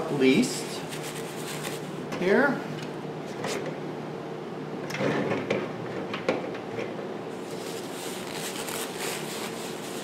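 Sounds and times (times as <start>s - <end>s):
paper rustling: 7.4s - 10.0s.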